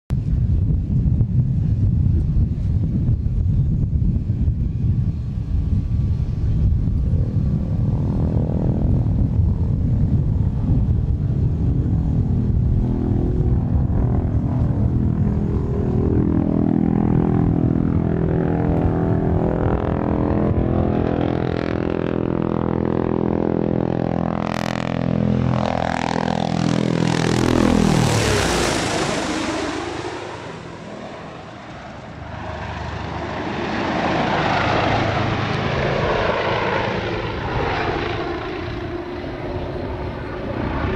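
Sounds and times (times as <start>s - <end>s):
helicopter rotor drone: 0.1s - 40.9s
rushing sound: 26.6s - 32.3s.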